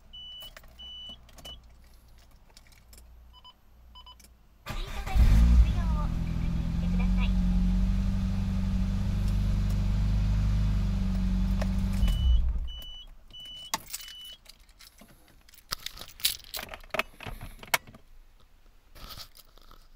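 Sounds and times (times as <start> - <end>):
dashboard warning chime beeps: 0.1 - 1.6, 3.3 - 4.2, 11.9 - 14.4
keys jangling and clicking: 0.5 - 3.1, 13.5 - 17.0
car engine idling: 4.7 - 12.7.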